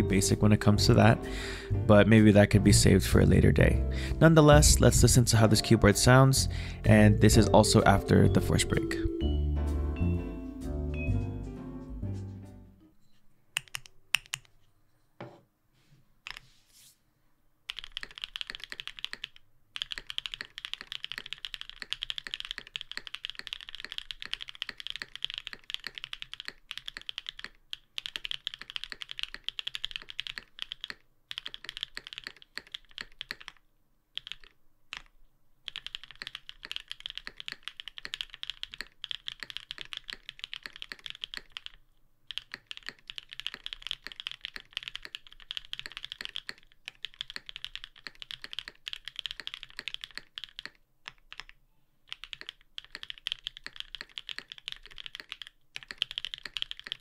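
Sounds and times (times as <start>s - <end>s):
typing on mechanical keyboard: 13.6s - 14.5s, 17.7s - 33.6s, 34.2s - 35.1s, 35.7s - 57.0s.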